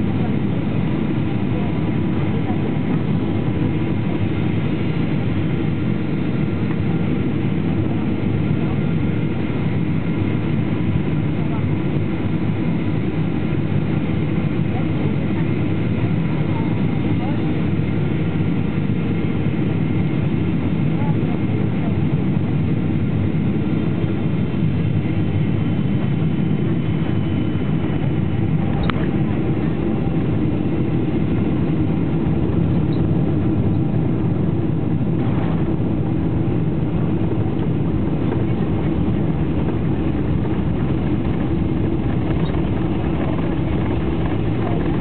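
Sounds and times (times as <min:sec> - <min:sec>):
jet engine and airflow roar: 0:00.0 - 0:45.0
high engine whine: 0:24.3 - 0:45.0.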